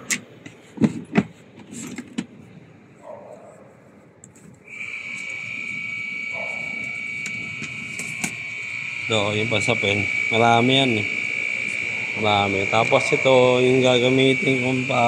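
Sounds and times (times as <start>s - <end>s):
knocks and clunks of handling: 0.1s - 2.4s
high-pitched whine: 4.6s - 15.0s.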